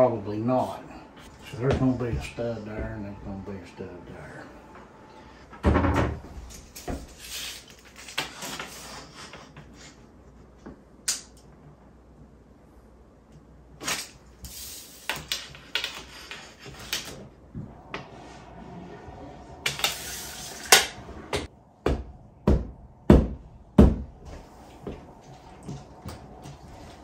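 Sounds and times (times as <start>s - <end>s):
tools clicking and scraping on drywall: 6.5s - 10.0s, 13.8s - 17.2s
sharp knocks on wall: 21.8s - 24.1s.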